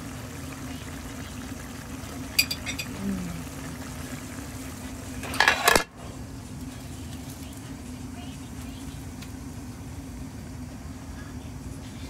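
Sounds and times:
steady low hum: 0:00.0 - 0:12.0
metal utensil scraping a pan: 0:05.3 - 0:05.8.

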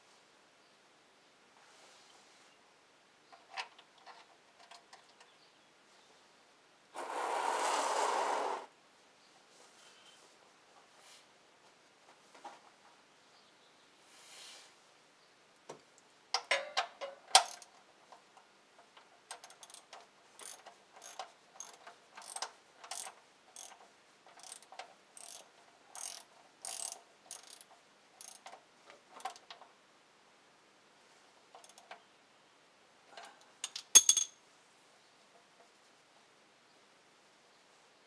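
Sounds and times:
socket ratchet clicking: 0:19.4 - 0:28.4
metal tool clanking on concrete: 0:33.2 - 0:34.4.

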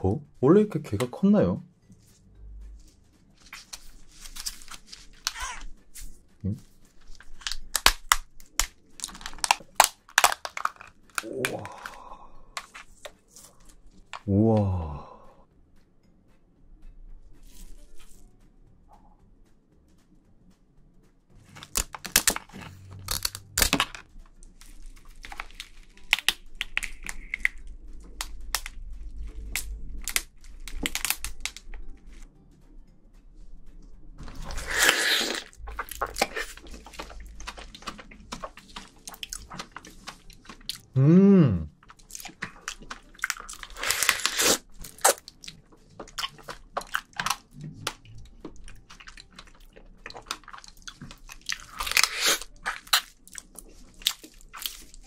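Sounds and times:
crab shell crunching: 0:03.4 - 0:14.3, 0:21.5 - 0:32.2, 0:34.2 - 0:40.9, 0:41.7 - 0:55.0
person humming: 0:14.3 - 0:15.3, 0:40.9 - 0:41.7
wet sucking: 0:34.3 - 0:40.9, 0:41.8 - 0:45.3, 0:50.1 - 0:53.8.

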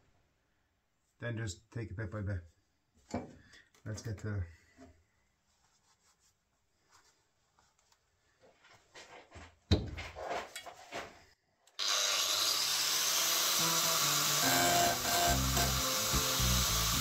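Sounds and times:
knocks and rustling: 0:08.5 - 0:11.3
angle grinder cutting metal: 0:11.8 - 0:17.0.

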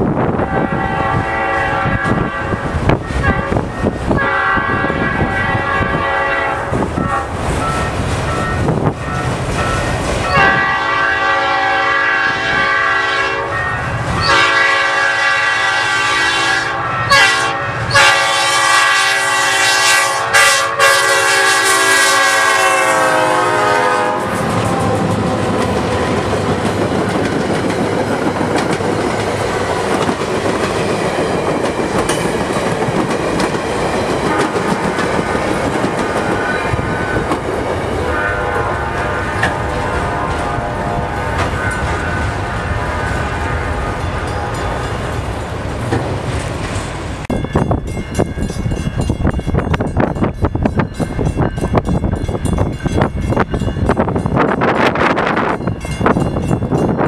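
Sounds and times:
railcar wheels clattering: 0:00.0 - 0:15.7, 0:21.6 - 0:57.0
locomotive chime horn: 0:00.4 - 0:26.2, 0:36.2 - 0:45.2.

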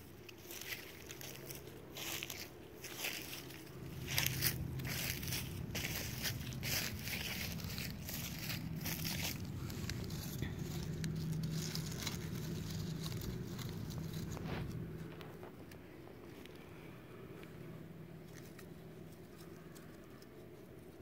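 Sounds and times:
dry leaves crackling and rustling: 0:00.0 - 0:16.6.

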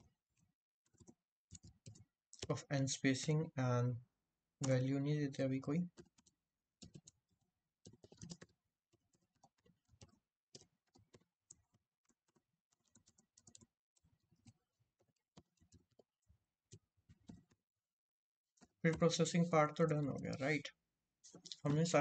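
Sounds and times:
computer keyboard typing: 0:00.8 - 0:02.5, 0:05.9 - 0:17.6, 0:21.3 - 0:22.0.

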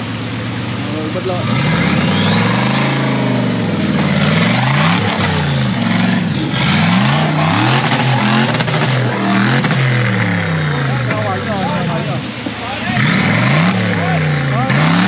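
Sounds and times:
engine revving: 0:00.0 - 0:15.0.

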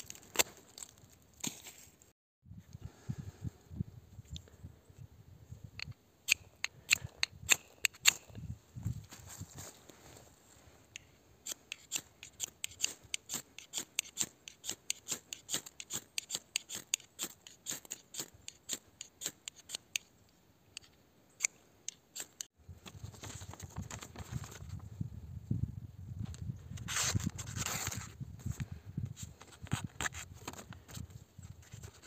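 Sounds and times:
knife scraping ferro rod: 0:11.4 - 0:20.1.

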